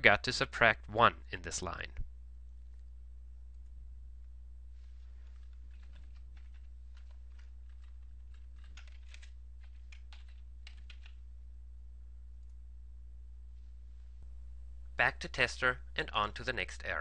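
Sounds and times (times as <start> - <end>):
steady low hum: 0.0 - 17.0
computer keyboard typing: 5.2 - 11.2.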